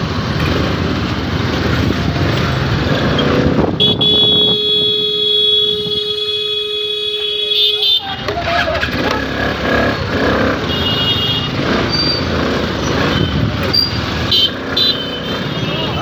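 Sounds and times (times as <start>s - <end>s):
scooter engine: 0.0s - 16.0s
traffic noise: 0.0s - 16.0s
vehicle horn held: 3.8s - 8.4s.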